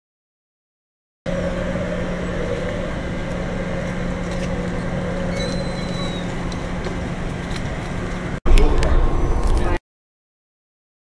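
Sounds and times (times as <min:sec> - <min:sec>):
faint high whistle: 0:05.3 - 0:06.3.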